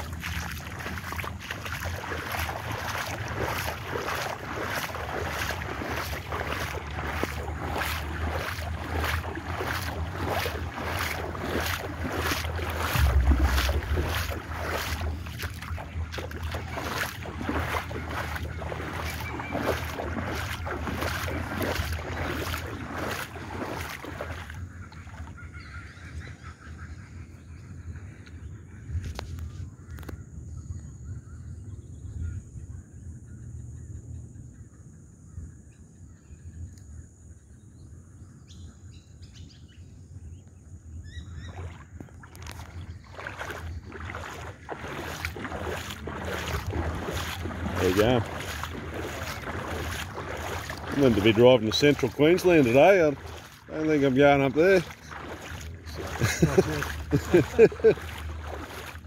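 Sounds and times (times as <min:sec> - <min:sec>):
wading steps sloshing in water: 0:00.0 - 0:26.3, 0:41.1 - 0:59.0
low rumble: 0:06.8 - 0:19.5
heavy low bump: 0:12.4 - 0:18.6.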